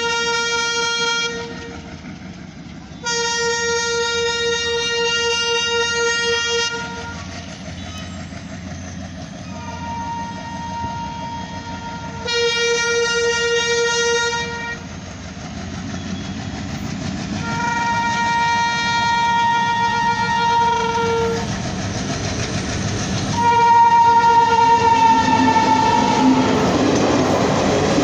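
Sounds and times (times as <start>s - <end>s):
locomotive horn blasts: 0.0s - 1.8s, 3.0s - 7.3s, 9.5s - 14.9s, 17.4s - 21.5s, 23.4s - 26.8s
train rumble: 0.0s - 28.0s.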